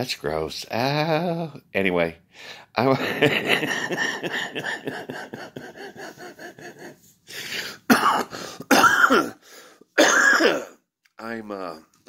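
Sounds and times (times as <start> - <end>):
man coughing: 3.4 - 6.8, 7.6 - 9.4, 10.0 - 10.8.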